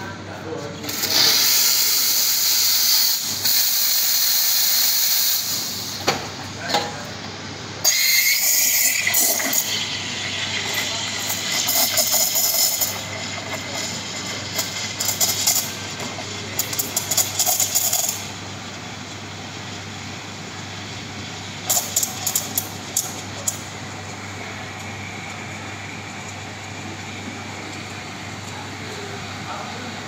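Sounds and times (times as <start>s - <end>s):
steam wand hissing: 0.9s - 6.0s
crackling chirps of steaming milk: 1.0s - 6.0s, 7.8s - 29.4s.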